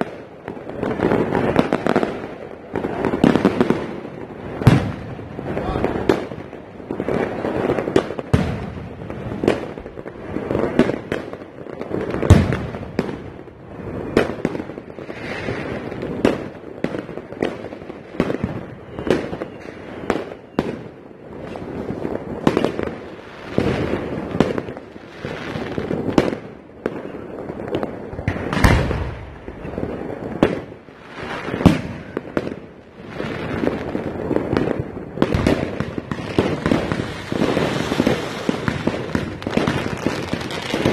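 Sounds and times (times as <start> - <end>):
fireworks bangs: 0.0 - 40.9
din of distant explosions: 0.7 - 14.9, 28.1 - 30.9.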